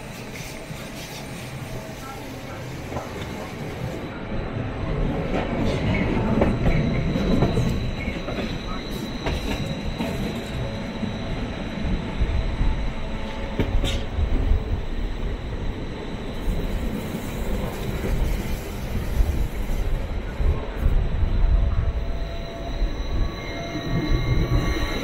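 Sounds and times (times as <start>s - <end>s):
train wheels rumbling on rail: 0.0s - 25.0s
high wheel squeal: 5.7s - 12.0s, 21.6s - 25.0s.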